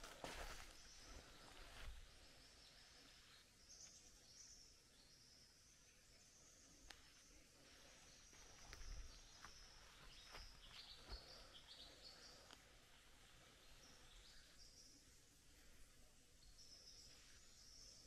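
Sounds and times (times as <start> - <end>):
soft footfall crunches: 0.0 - 2.0
low steady hiss: 0.0 - 18.0.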